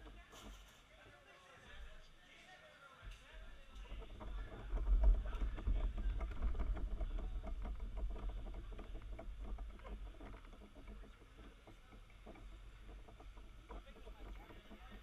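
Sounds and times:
small clicks and rattles: 0:00.0 - 0:01.2, 0:03.0 - 0:15.0
kart rolling over asphalt: 0:03.8 - 0:15.0.

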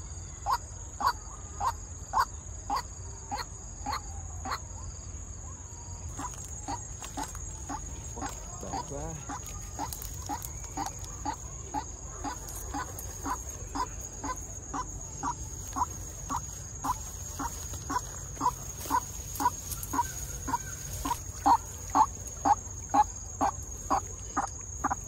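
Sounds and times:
waterhen calling: 0:06.1 - 0:25.0.

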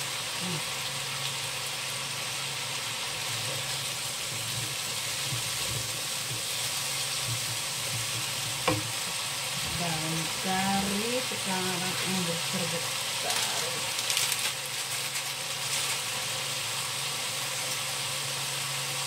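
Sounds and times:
leaves sizzling in hot oil: 0:00.0 - 0:19.0
wooden spatula stirring: 0:04.2 - 0:11.0.

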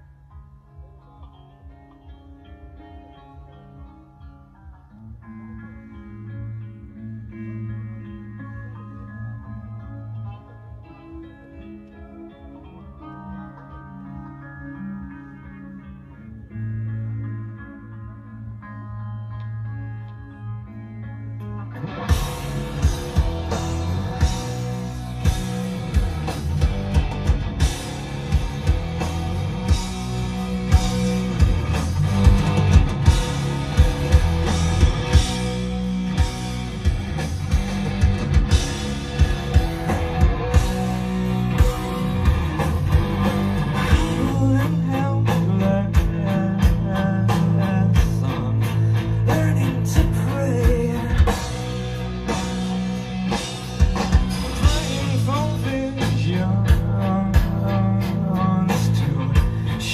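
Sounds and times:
bass guitar: 0:00.0 - 0:59.9
electric guitar: 0:00.0 - 0:59.9
drum kit beat: 0:22.1 - 0:59.9.

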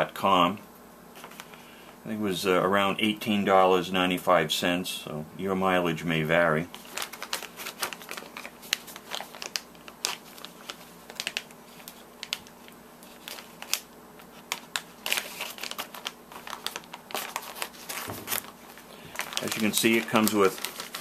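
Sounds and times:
plastic crinkling: 0:01.2 - 0:01.6, 0:06.7 - 0:21.0
scissors snipping plastic bag: 0:19.1 - 0:21.0.

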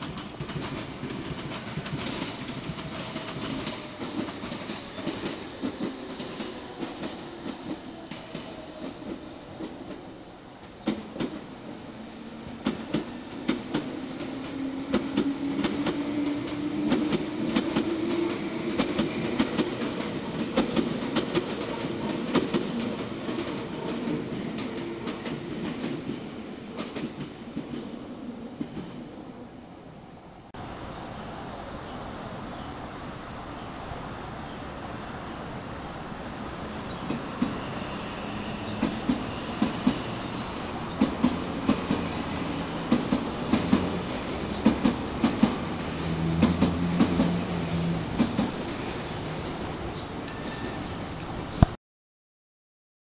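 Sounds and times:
train wheels clacking over rail joints: 0:00.0 - 0:08.5.

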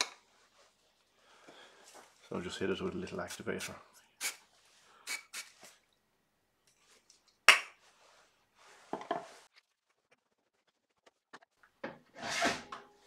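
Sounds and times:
aerosol spray puffs: 0:03.3 - 0:04.4, 0:05.0 - 0:05.8.

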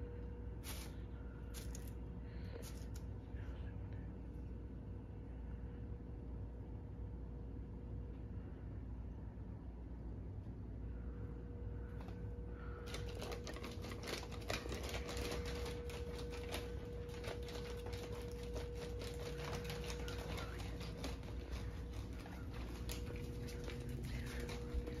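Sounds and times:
low hum: 0:00.0 - 0:25.0
cat eating crunches: 0:00.6 - 0:03.5, 0:12.0 - 0:25.0.

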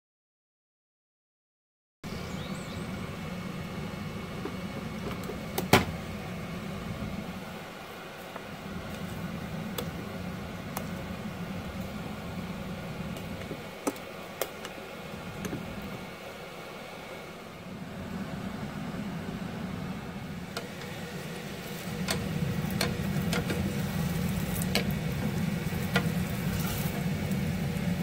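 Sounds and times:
low appliance hum: 0:02.0 - 0:28.0
rice paddle tapping pot: 0:22.0 - 0:23.6.

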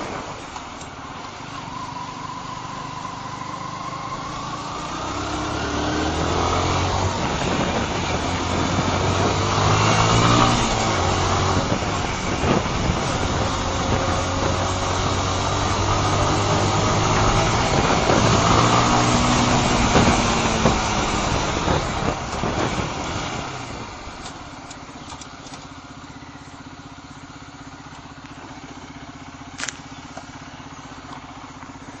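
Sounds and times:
motorcycle engine running: 0:00.0 - 0:32.0
wind rush on microphone: 0:05.2 - 0:24.2
motorcycle engine idling: 0:23.6 - 0:32.0
sharp click: 0:29.6 - 0:30.3.

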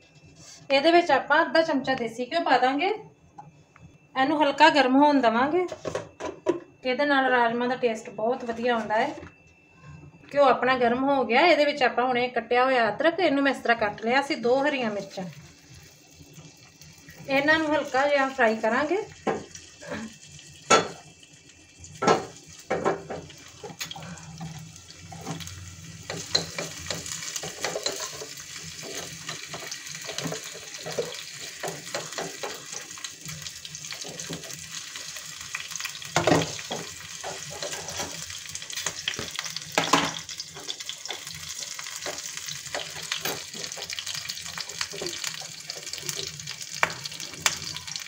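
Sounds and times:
frying hiss in a pan: 0:14.2 - 0:48.0
metal spoon scraping a pan: 0:26.1 - 0:32.6, 0:36.6 - 0:38.3.

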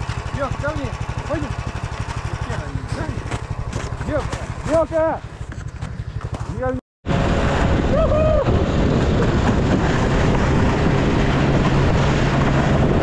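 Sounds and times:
snow tug engine running: 0:00.0 - 0:13.0
rising and falling tone: 0:07.1 - 0:13.0
wind on microphone: 0:07.1 - 0:13.0.

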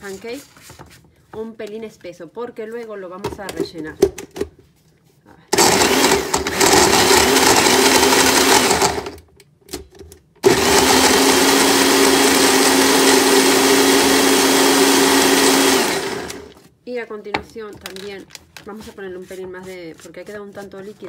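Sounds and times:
electric blender running: 0:05.6 - 0:09.2, 0:10.4 - 0:16.6.

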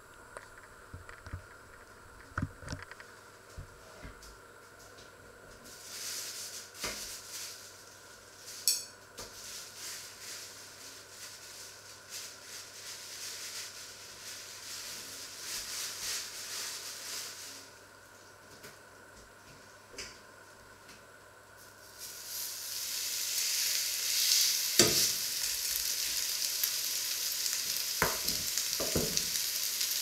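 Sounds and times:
fat sizzling in a pan: 0:05.6 - 0:18.1, 0:21.6 - 0:30.0.

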